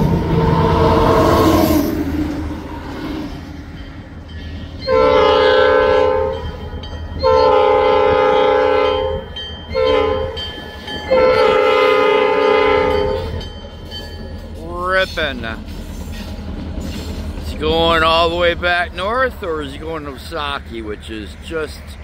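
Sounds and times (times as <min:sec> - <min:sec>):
locomotive air horn blasts: 0:00.0 - 0:01.9, 0:04.8 - 0:06.6, 0:07.2 - 0:10.4, 0:11.1 - 0:13.4.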